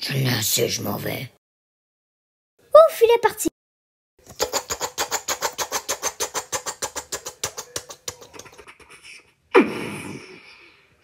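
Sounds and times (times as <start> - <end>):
rapid even tapping: 4.3 - 8.7.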